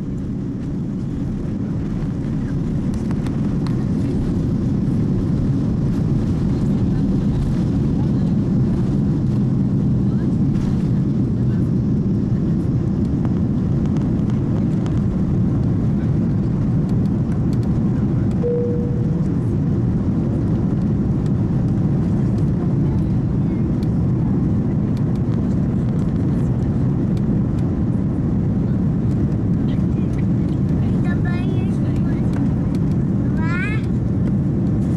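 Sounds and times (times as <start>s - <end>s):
jet engines roaring in cabin: 0.0s - 34.9s
steady tone: 18.4s - 19.6s.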